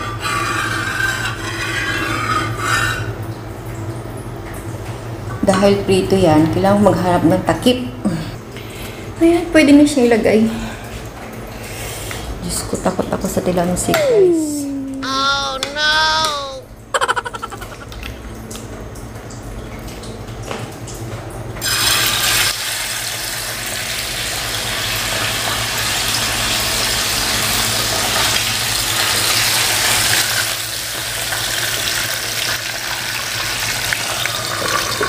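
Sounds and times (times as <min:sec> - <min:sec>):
chicken frying in hot oil: 0:18.1 - 0:35.0.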